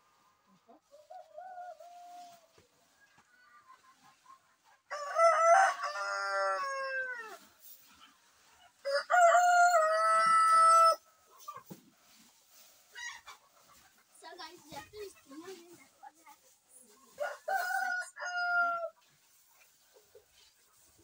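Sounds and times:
rooster crowing: 4.9 - 7.3, 8.8 - 11.0, 17.2 - 18.9.

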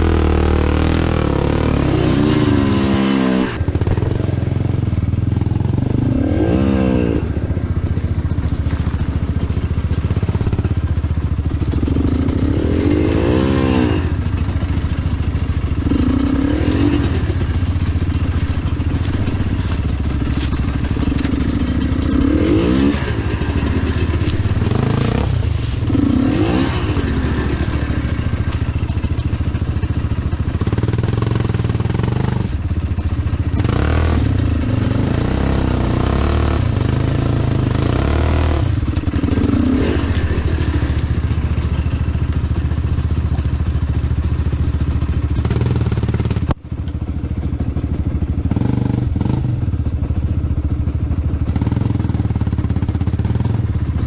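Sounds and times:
dirt bike engine revving: 0.0 - 42.7, 45.0 - 46.5, 48.4 - 49.7
bike clattering on rough trail: 7.6 - 47.0.

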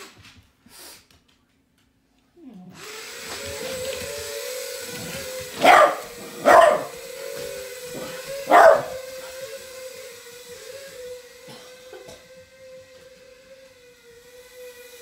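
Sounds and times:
small electric motor whine: 2.8 - 15.0
small dog barking: 5.5 - 7.0, 8.0 - 9.1.

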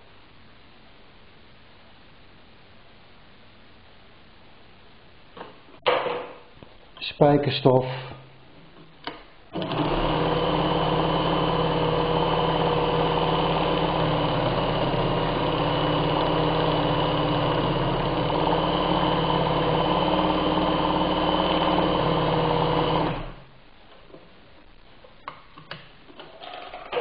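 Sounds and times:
sewing machine stitching: 9.5 - 23.4, 26.2 - 27.0.

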